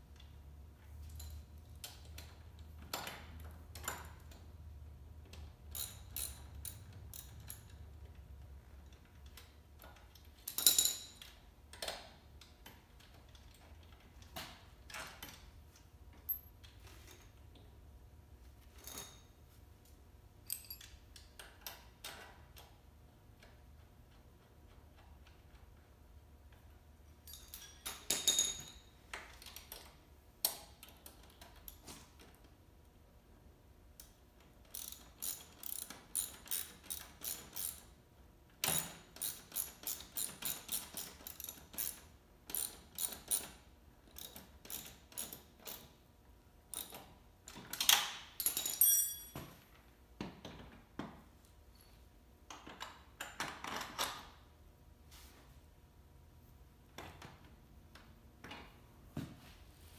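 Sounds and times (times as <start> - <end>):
ratchet wrench clicking: 5.2 - 7.8, 34.7 - 37.9, 38.6 - 45.9, 46.7 - 47.1.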